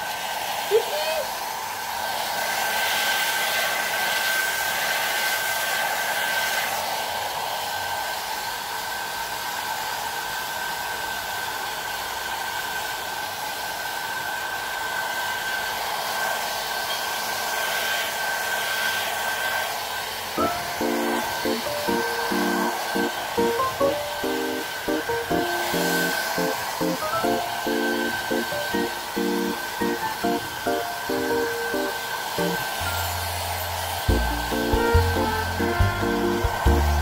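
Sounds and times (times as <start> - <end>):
pet grooming dryer blowing: 0.0 - 37.0
music: 20.4 - 37.0.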